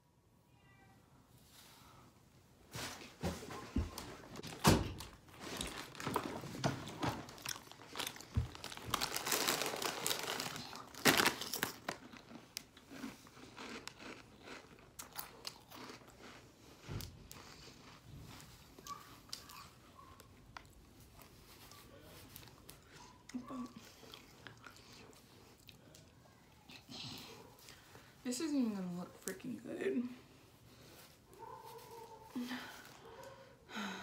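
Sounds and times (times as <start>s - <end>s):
plastic snack bag crinkling: 4.5s - 16.7s
crunchy snack chewing: 7.3s - 19.8s.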